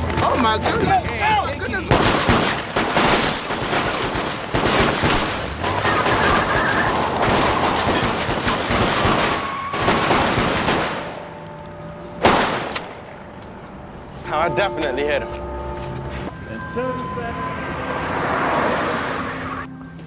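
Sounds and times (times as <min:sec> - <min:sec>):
rapid handgun fire: 0:01.9 - 0:06.6, 0:07.3 - 0:11.1, 0:12.2 - 0:12.8
glass shattering: 0:02.1 - 0:09.4.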